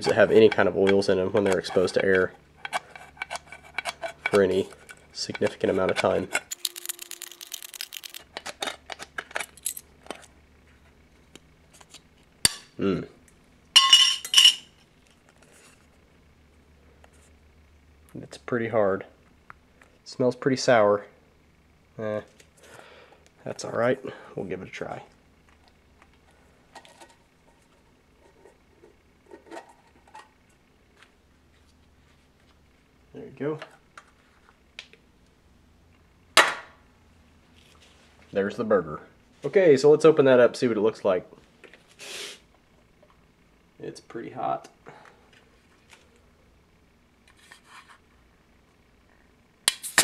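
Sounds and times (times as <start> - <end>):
can opener clicking on metal: 6.0 - 8.5.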